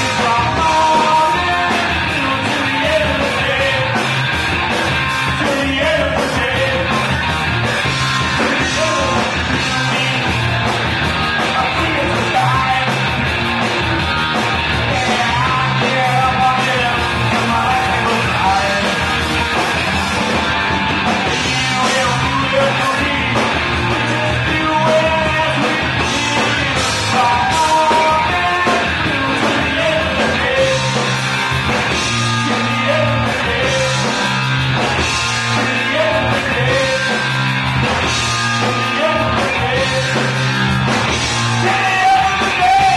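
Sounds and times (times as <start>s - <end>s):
person singing: 0.0s - 4.1s, 8.2s - 13.2s, 14.7s - 19.1s, 21.3s - 31.1s, 32.0s - 34.3s, 35.2s - 37.3s, 38.2s - 40.4s, 41.6s - 42.9s
live rock band playing: 0.0s - 42.9s.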